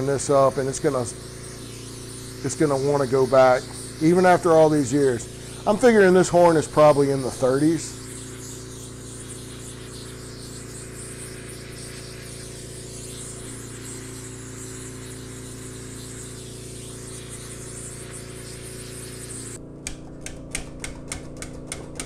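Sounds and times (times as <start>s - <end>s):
gas torch flame hissing: 0.0s - 19.6s
electrical hum: 0.0s - 22.0s.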